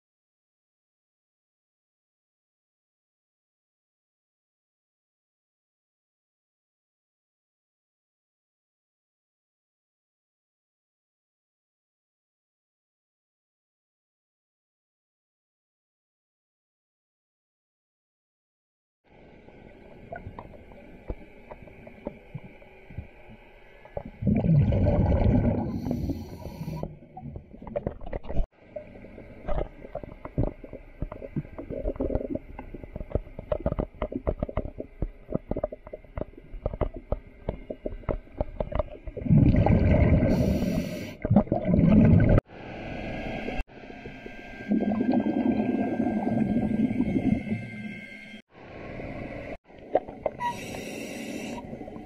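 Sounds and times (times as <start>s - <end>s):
bubbles crackling: 23.9s - 42.4s
underwater bubble exhaust gushes: 23.9s - 42.4s, 43.9s - 48.0s.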